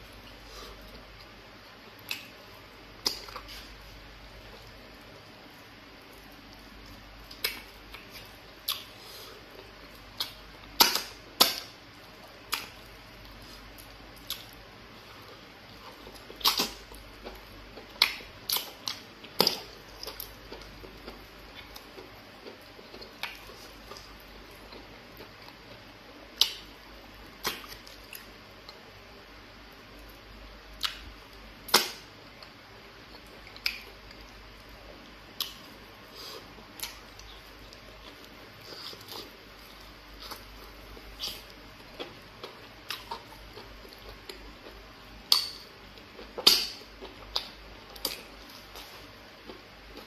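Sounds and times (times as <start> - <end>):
person eating by hand: 0.1 - 29.0, 29.7 - 50.0.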